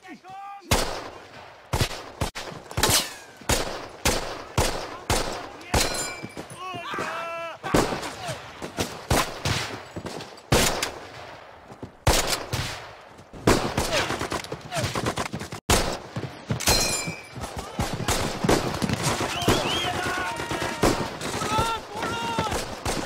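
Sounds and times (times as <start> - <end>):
rifle and machine-gun shots: 0.7 - 6.5, 7.7 - 21.7, 22.3 - 23.0
men shouting: 6.6 - 8.4, 19.3 - 22.6.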